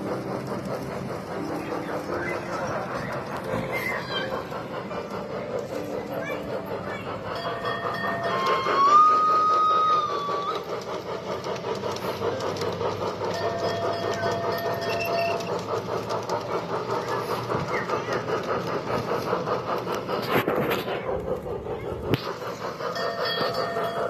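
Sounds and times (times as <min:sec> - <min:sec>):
train wheels clattering on rails: 0:00.0 - 0:24.0.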